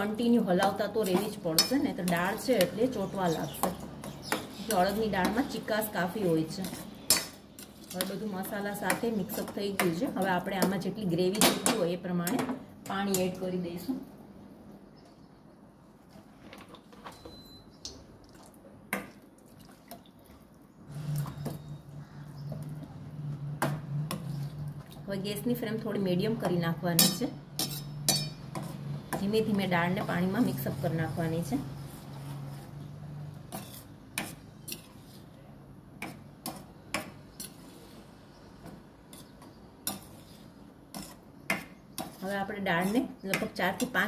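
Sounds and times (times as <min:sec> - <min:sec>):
spatula clinking on metal pan: 0:01.1 - 0:02.2, 0:27.0 - 0:28.7.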